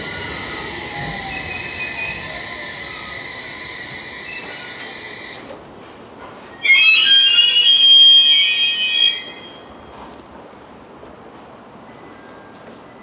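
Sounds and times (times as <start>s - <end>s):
train brakes squealing: 0.0s - 5.4s, 6.5s - 10.2s, 11.8s - 13.0s
shrill brake squeal: 6.5s - 10.1s.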